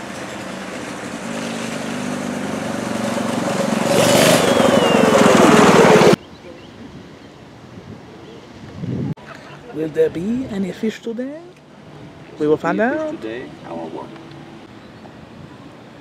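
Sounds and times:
go-kart engine passing: 0:00.0 - 0:06.2.

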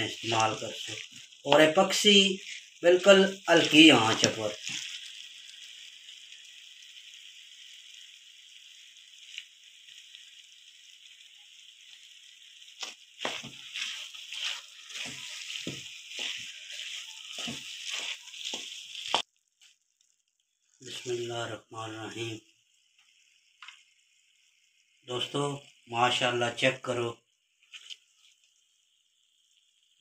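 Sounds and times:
food sizzling in a pan: 0:00.0 - 0:30.0
spatula scraping pan: 0:01.0 - 0:02.8, 0:12.8 - 0:19.2.

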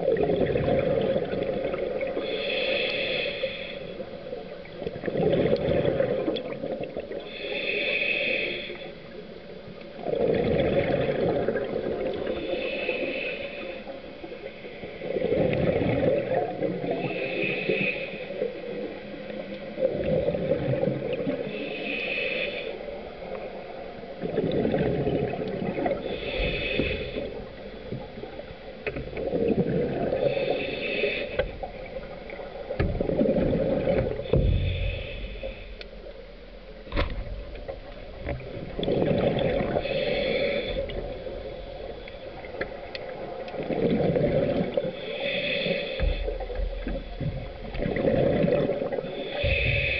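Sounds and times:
exhaled bubbles rumbling: 0:00.0 - 0:02.3, 0:04.2 - 0:07.2, 0:09.9 - 0:12.5, 0:14.9 - 0:17.2, 0:19.7 - 0:21.5, 0:23.3 - 0:49.9
regulator inhale hiss: 0:02.0 - 0:04.5, 0:07.1 - 0:09.5, 0:12.1 - 0:15.2, 0:16.6 - 0:19.6, 0:21.2 - 0:24.1, 0:25.9 - 0:29.0, 0:30.0 - 0:33.0, 0:33.8 - 0:38.4, 0:39.4 - 0:43.2, 0:44.8 - 0:47.9, 0:49.0 - 0:49.9.

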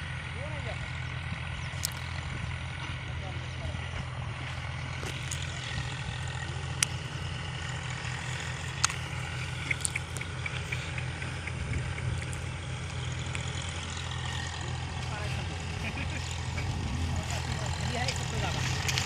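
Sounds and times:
tractor diesel engine droning: 0:00.0 - 0:19.0
sharp clicks: 0:01.7 - 0:02.1, 0:06.2 - 0:14.0
faint high ticks: 0:08.4 - 0:13.5.

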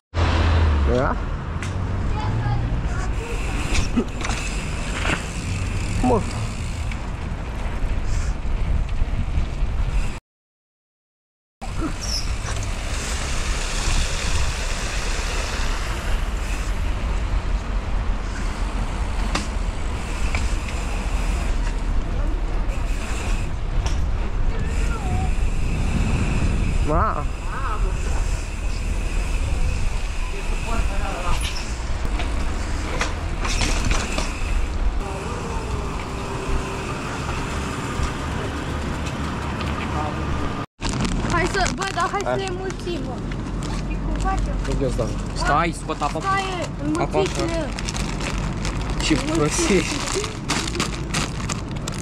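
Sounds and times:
wind rushing over microphone: 0:05.2 - 0:10.2, 0:11.7 - 0:20.1, 0:21.2 - 0:42.0
tyres rolling over paving stones: 0:32.2 - 0:45.4, 0:46.1 - 0:52.0.

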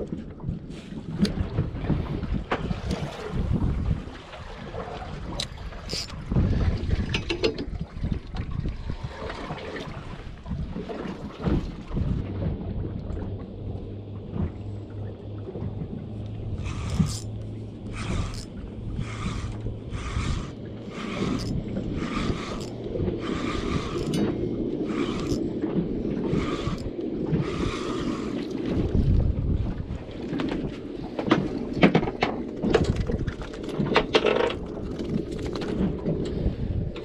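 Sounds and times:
wind and water rumble: 0:00.0 - 0:37.0
fishing reel whirring: 0:05.4 - 0:06.2, 0:16.5 - 0:25.5, 0:26.2 - 0:28.8.

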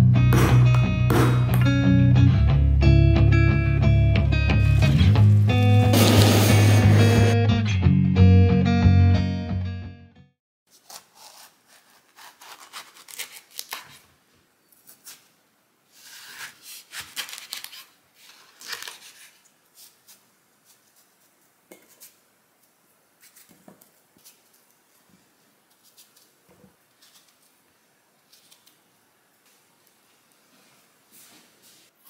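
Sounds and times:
knife cutting melon on board: 0:10.7 - 0:13.9.

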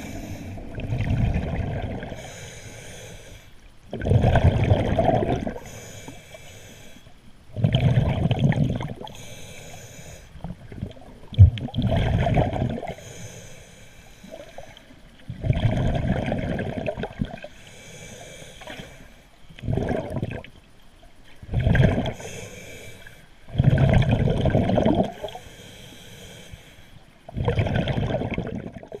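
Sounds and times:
exhaled bubbles rumbling underwater: 0:00.0 - 0:03.0, 0:03.6 - 0:06.2, 0:07.3 - 0:13.1, 0:14.2 - 0:17.6, 0:18.6 - 0:22.4, 0:23.4 - 0:25.5, 0:27.2 - 0:29.0
soft underwater hiss: 0:00.0 - 0:29.0.

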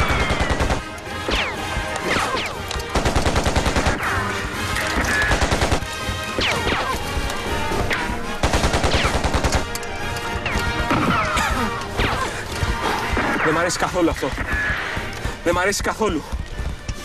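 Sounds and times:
automatic gunfire bursts: 0:00.0 - 0:00.9, 0:02.9 - 0:04.0, 0:05.3 - 0:05.9, 0:08.4 - 0:09.7.

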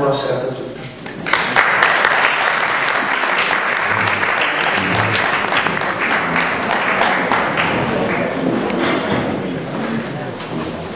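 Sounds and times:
audience applauding: 0:01.1 - 0:08.9.

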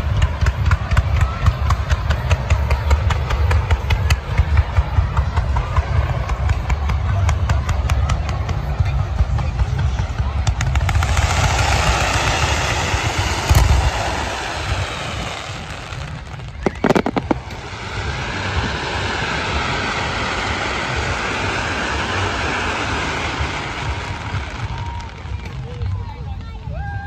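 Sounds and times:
fireworks rumbling hiss: 0:00.0 - 0:27.0
fireworks shells bursting: 0:11.2 - 0:23.7.

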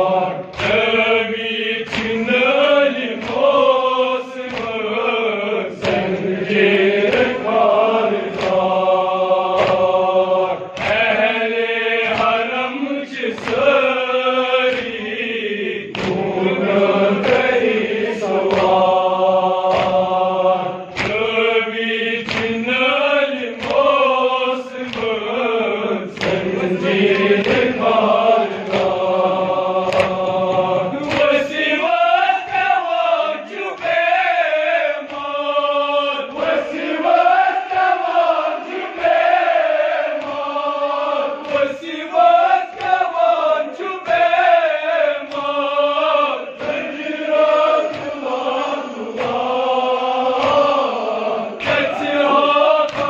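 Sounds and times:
men chanting in unison: 0:00.0 - 0:53.0
chest-beating slaps: 0:00.3 - 0:03.6, 0:04.4 - 0:04.9, 0:05.8 - 0:08.8, 0:09.4 - 0:11.2, 0:12.0 - 0:13.8, 0:14.7 - 0:15.2, 0:15.8 - 0:20.2, 0:20.8 - 0:21.5, 0:22.2 - 0:22.6, 0:23.5 - 0:24.0, 0:24.8 - 0:25.2, 0:26.1 - 0:31.7, 0:46.5 - 0:49.6, 0:50.2 - 0:53.0.

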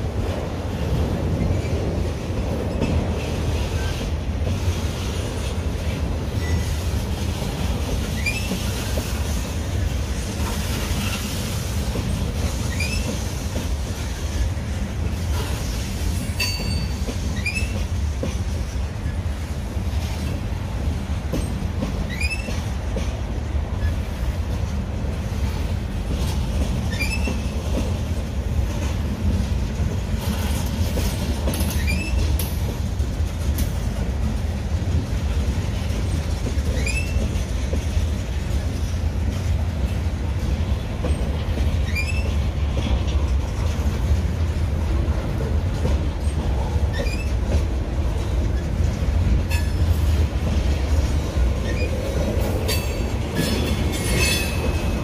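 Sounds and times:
train wheels rumbling on rail: 0:00.0 - 0:55.0
high wheel squeals: 0:26.9 - 0:27.6.

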